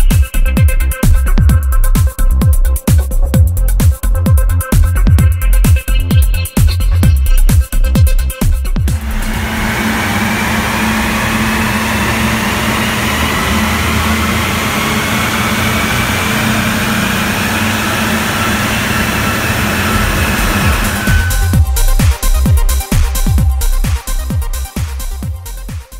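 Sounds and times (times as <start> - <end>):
tyres rushing on rollers: 8.9 - 22.1
rising whine: 8.9 - 23.4
diesel engine under load: 8.9 - 25.2
electronic music: 8.9 - 25.9.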